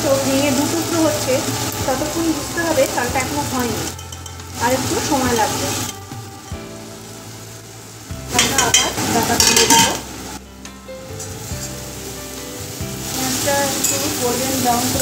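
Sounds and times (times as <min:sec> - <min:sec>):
food sizzling in a wok: 0:00.0 - 0:15.0
stirring in a wok: 0:03.6 - 0:06.7, 0:08.3 - 0:10.4, 0:11.1 - 0:14.3.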